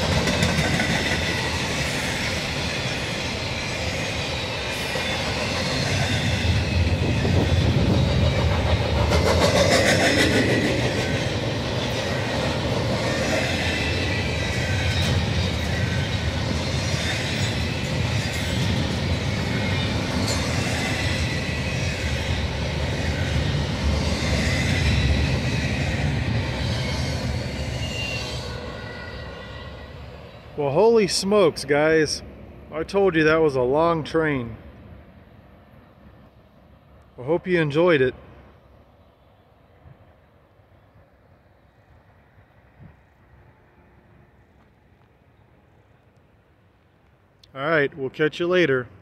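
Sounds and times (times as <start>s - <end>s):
clicks of train wheels: 0.0s - 2.4s
freight train wheels rumbling on rail: 0.0s - 35.2s.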